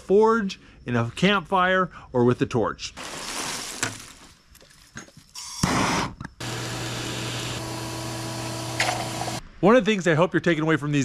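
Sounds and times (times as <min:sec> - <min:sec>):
vacuum blower motor hum: 0:05.7 - 0:09.4.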